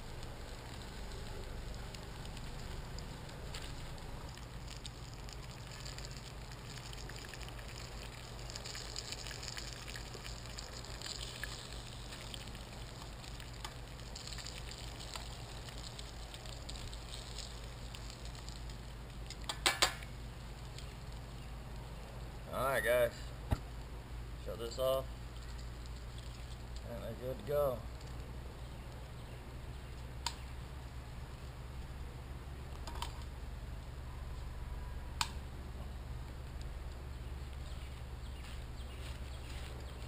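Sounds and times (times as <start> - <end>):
fish frying in hot oil: 0.0 - 21.3
burner flame rumble: 0.0 - 21.8.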